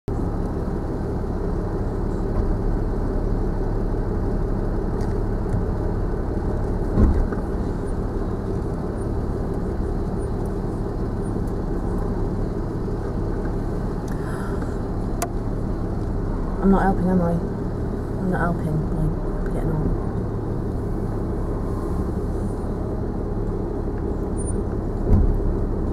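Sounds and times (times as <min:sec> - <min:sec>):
car engine drone in cabin: 0:00.1 - 0:25.9
thump: 0:06.9 - 0:07.4, 0:25.0 - 0:25.4.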